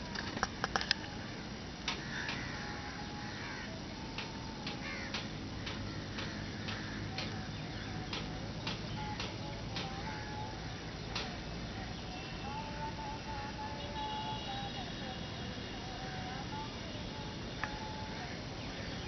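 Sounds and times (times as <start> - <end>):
sharp irregular clicks: 0.0 - 1.1, 1.8 - 2.5, 4.1 - 10.1, 11.1 - 11.4
faint bird chirping: 0.0 - 19.0.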